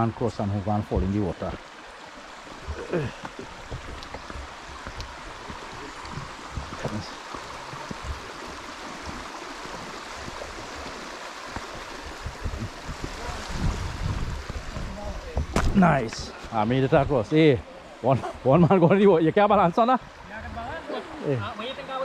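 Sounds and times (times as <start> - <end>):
stream running over stones: 0.0 - 22.0
low thumps: 11.6 - 16.3.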